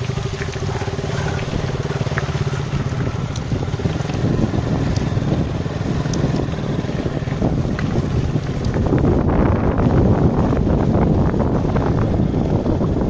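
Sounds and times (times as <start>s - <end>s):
faint ticks: 0.0s - 5.1s, 6.0s - 6.5s
motorcycle engine rumbling: 0.0s - 13.0s.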